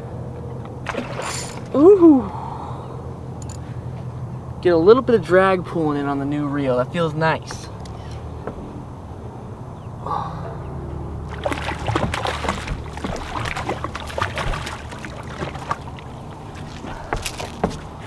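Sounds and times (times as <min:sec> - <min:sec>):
steady low hum: 0:00.0 - 0:18.0
fish splashing at surface: 0:00.9 - 0:01.7, 0:11.3 - 0:18.0.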